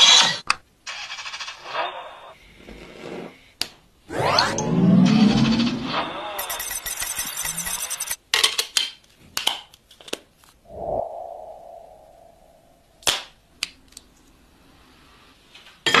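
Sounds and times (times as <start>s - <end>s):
ringing tone: 5.8s - 8.2s.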